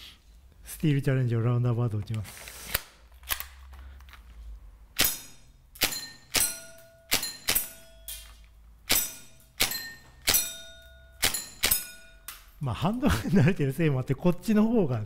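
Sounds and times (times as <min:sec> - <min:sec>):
steel target plate ringing: 0:05.0 - 0:08.2, 0:08.9 - 0:12.4.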